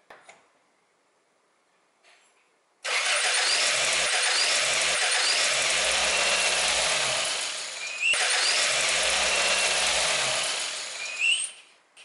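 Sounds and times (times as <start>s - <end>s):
car engine running: 3.2s - 11.1s.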